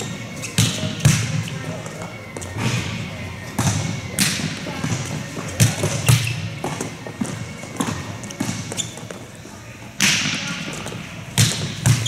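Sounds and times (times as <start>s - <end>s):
volleyballs struck and bouncing: 0.0s - 12.0s.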